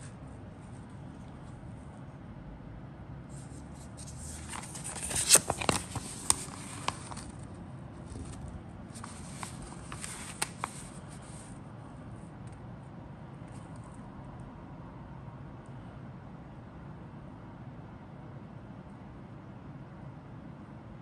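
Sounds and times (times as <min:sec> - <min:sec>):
paper rustling and crackling: 0:03.4 - 0:11.5.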